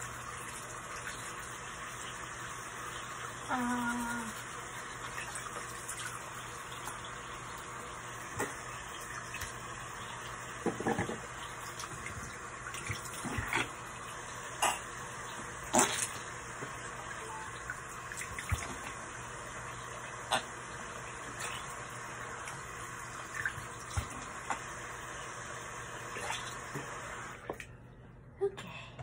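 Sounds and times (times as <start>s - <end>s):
tap water running into sink: 0.0s - 27.7s
knocks and splashes at basin: 10.6s - 13.8s, 18.1s - 19.0s, 23.3s - 24.6s.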